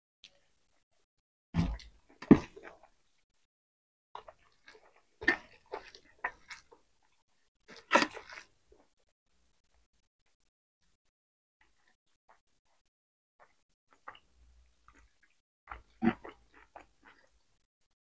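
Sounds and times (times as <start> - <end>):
chewing and crunching food: 1.6 - 3.2, 4.2 - 9.9, 11.6 - 17.7.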